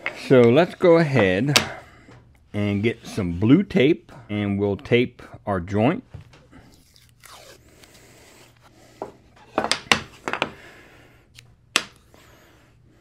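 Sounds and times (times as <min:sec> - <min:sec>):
tape tearing: 0:06.7 - 0:08.0.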